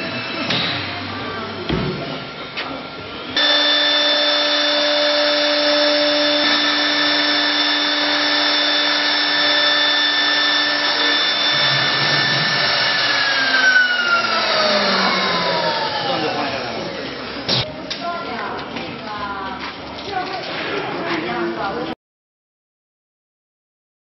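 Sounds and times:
router spindle whine: 0:02.3 - 0:17.5.

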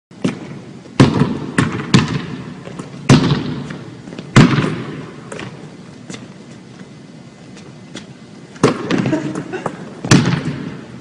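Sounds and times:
basketball bouncing on wooden floor: 0:00.2 - 0:05.6, 0:10.0 - 0:10.8.

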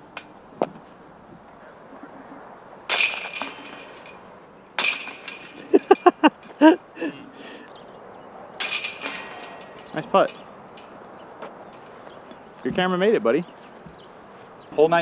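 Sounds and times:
discs hitting basket chains: 0:02.9 - 0:06.9, 0:08.6 - 0:12.7.

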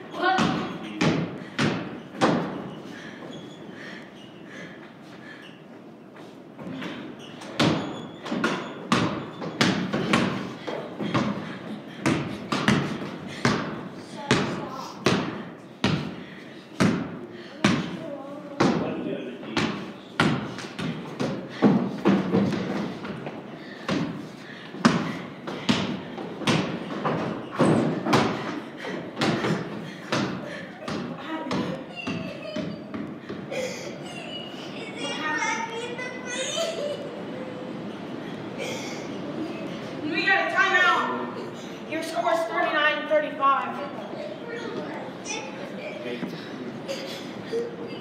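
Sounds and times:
basketball bouncing on wooden floor: 0:00.3 - 0:02.6, 0:07.4 - 0:16.1, 0:16.8 - 0:18.0, 0:19.5 - 0:24.2, 0:24.8 - 0:28.5, 0:29.1 - 0:33.4.

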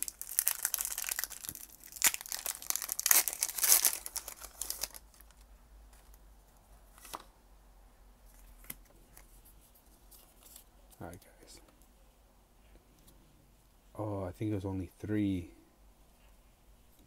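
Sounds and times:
foil wrapper tearing and crinkling: 0:00.0 - 0:05.4
faint rustling of cards: 0:00.0 - 0:07.3, 0:08.2 - 0:11.9.

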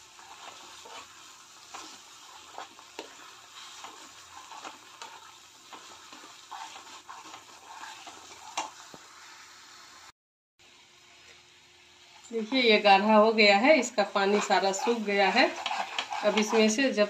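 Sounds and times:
spatula scraping a pan: 0:00.0 - 0:09.0, 0:13.7 - 0:17.0
paste sizzling in oil: 0:00.0 - 0:10.1, 0:11.0 - 0:17.0.

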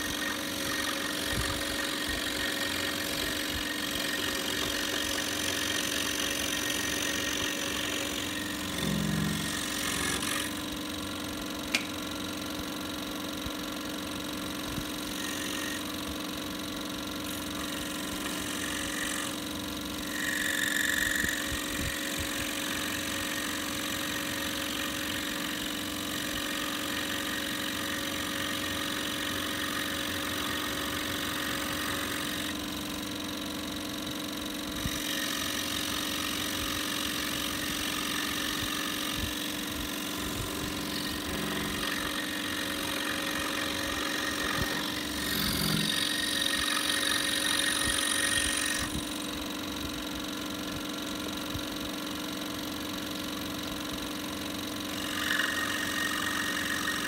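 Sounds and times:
scroll saw cutting wood: 0:00.0 - 0:51.4, 0:53.1 - 0:57.0
sharp click: 0:11.7 - 0:12.0.

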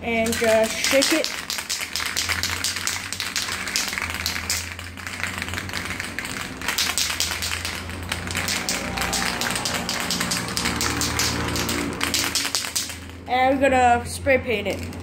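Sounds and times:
spray can mixing ball rattling: 0:00.0 - 0:15.0.

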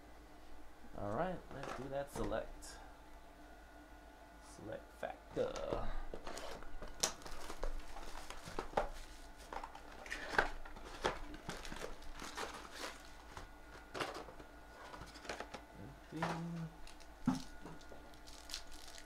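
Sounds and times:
shrink-wrap crinkling and tearing: 0:06.2 - 0:08.9, 0:09.6 - 0:13.2, 0:16.8 - 0:19.0.

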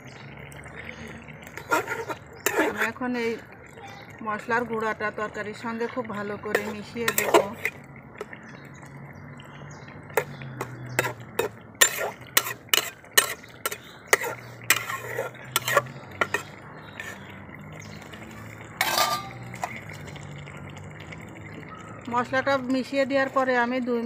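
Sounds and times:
spatula clatter: 0:01.5 - 0:02.9, 0:06.5 - 0:08.3, 0:10.1 - 0:17.3, 0:18.6 - 0:19.8
metal spatula scraping pan: 0:01.6 - 0:03.0, 0:06.5 - 0:07.8, 0:10.2 - 0:17.4, 0:18.8 - 0:19.8.

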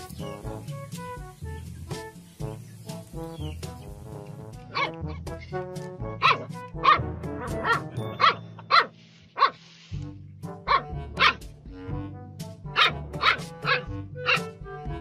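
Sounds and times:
background music: 0:00.0 - 0:15.0
puppy yapping: 0:06.2 - 0:09.6, 0:10.7 - 0:11.4, 0:12.8 - 0:14.5.

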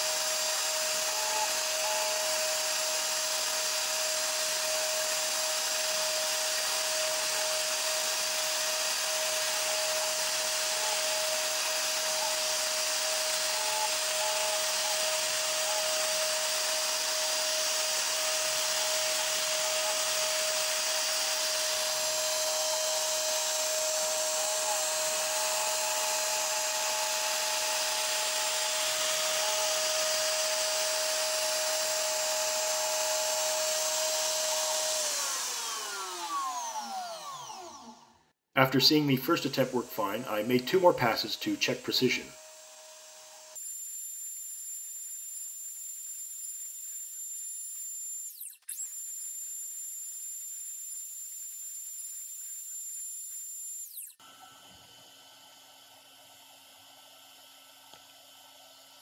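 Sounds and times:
router spindle whining: 0:00.0 - 0:43.6.

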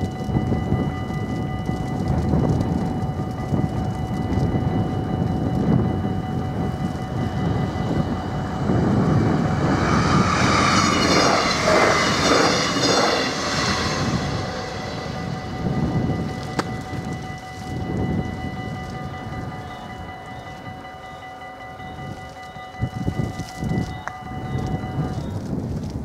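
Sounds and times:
level crossing warning bell: 0:00.0 - 0:11.9, 0:12.8 - 0:25.4
wind rumble on microphone: 0:00.0 - 0:21.0, 0:21.7 - 0:26.0
broad rushing noise: 0:06.3 - 0:20.1.

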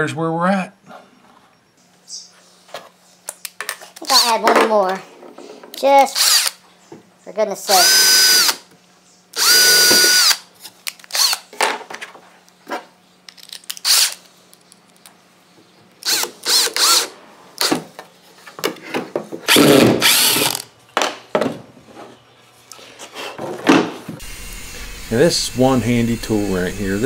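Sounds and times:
cordless drill whining: 0:06.2 - 0:06.6, 0:07.8 - 0:08.6, 0:09.4 - 0:10.4, 0:11.1 - 0:11.4, 0:13.8 - 0:14.2, 0:16.0 - 0:17.1, 0:19.5 - 0:20.6, 0:24.2 - 0:27.0.

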